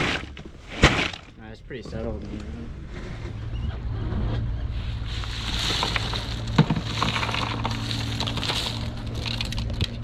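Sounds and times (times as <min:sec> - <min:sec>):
ice cubes rattling and crunching: 0:05.1 - 0:10.0.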